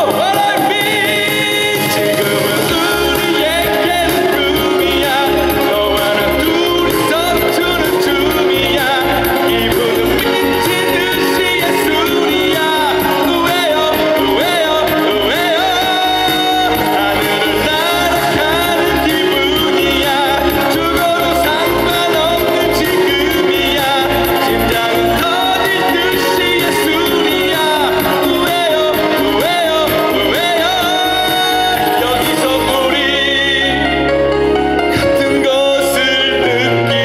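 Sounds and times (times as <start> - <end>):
music with steady kick drum beat: 0.0 - 33.1
man singing into a microphone: 0.0 - 37.0.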